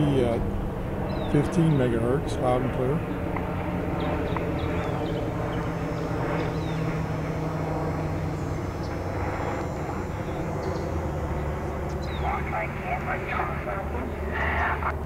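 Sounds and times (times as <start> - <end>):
shortwave radio hiss and static: 0.0 - 3.6, 11.3 - 15.0
steady low hum: 0.0 - 15.0.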